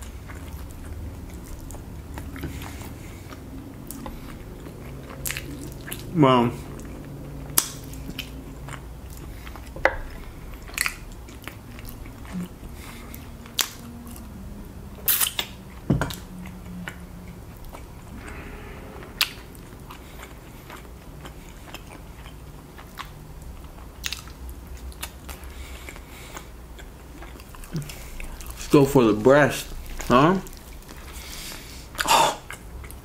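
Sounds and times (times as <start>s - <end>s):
chewing chicken: 0.0s - 33.0s
wet mouth clicks and smacks: 7.5s - 8.4s.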